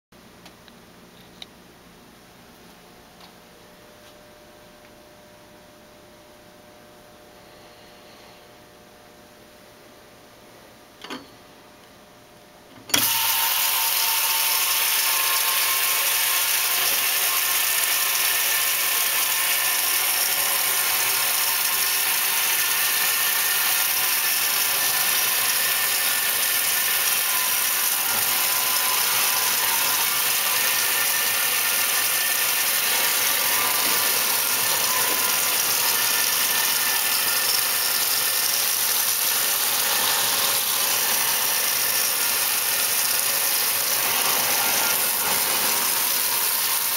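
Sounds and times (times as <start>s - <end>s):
washing machine water filling hiss: 13.0s - 46.9s.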